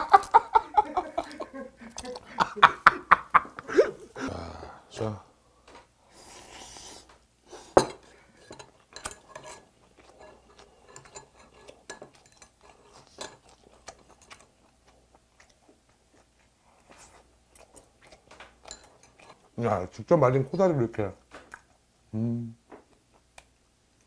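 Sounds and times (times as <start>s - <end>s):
utensils clinking on bowl: 7.7s - 14.4s, 18.3s - 19.7s
chewing: 8.3s - 19.9s.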